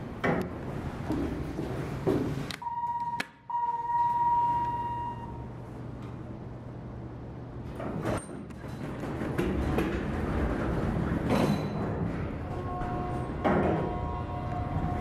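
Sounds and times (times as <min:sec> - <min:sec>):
elevator beeper high tone: 0:02.6 - 0:05.8, 0:12.5 - 0:15.0
low steady hum: 0:02.6 - 0:07.8.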